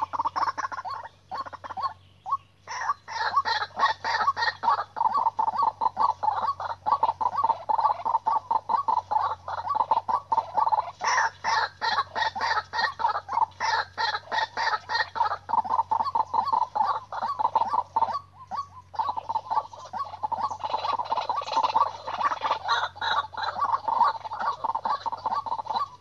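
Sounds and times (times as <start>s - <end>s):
waterhen harsh clucking call: 0.0s - 26.0s.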